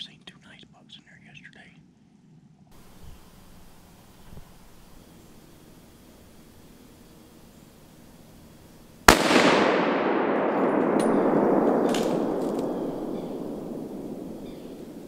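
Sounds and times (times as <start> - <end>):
echoing rumble: 2.8 - 15.0
gunshot crack: 9.1 - 15.0.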